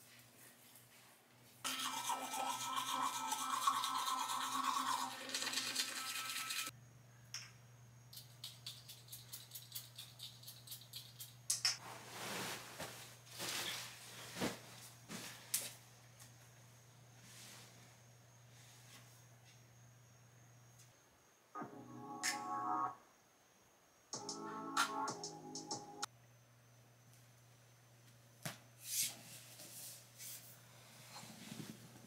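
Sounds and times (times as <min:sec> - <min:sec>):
electric toothbrush buzzing: 0:01.7 - 0:06.7
soft rustling: 0:11.8 - 0:15.8.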